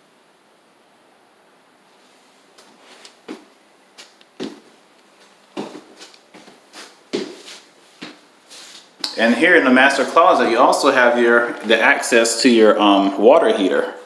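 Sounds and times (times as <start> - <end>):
footsteps and light knocks: 2.1 - 9.3.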